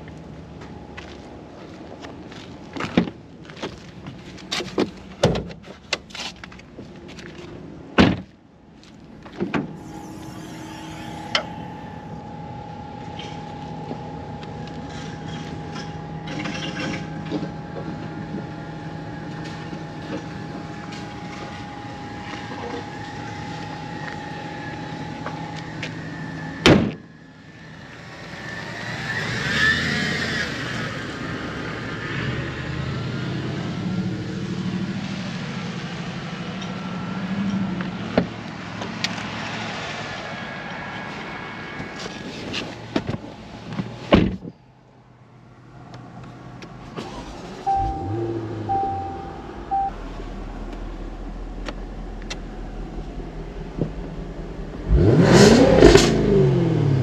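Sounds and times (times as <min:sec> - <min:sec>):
car door slamming: 0:08.0 - 0:08.3
steady hum with held tone: 0:09.7 - 0:28.2, 0:47.7 - 0:54.9.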